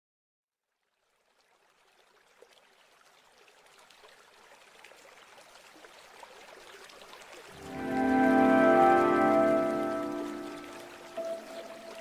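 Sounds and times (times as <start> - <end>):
trickling water texture: 0.7 - 12.0.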